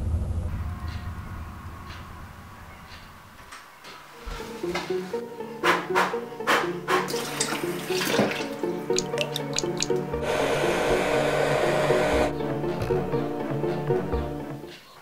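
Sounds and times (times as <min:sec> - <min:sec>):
background music: 0:01.8 - 0:15.0
hair dryer blowing: 0:10.2 - 0:12.4.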